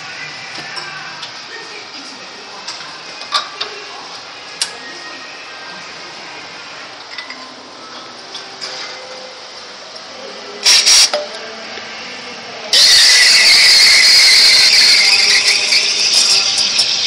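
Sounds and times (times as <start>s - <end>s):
steam wand blasts: 12.8s - 16.5s
high-pitched steam hiss: 12.8s - 17.0s.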